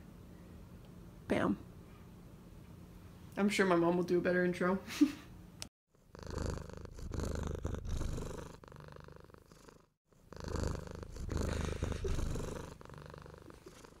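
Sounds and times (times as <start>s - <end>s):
low rhythmic purring: 5.9s - 14.0s.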